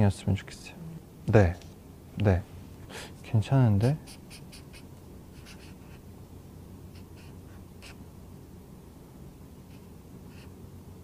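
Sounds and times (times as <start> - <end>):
low room hum: 0.0 - 11.0
marker scratching on paper: 3.8 - 6.0, 6.9 - 8.0, 9.7 - 10.5.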